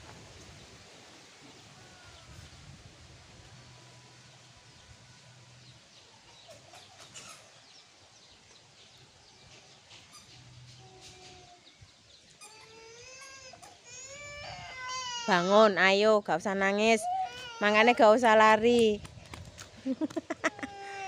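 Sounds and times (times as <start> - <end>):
young child crying: 12.5 - 15.6, 17.0 - 18.0, 20.5 - 21.0.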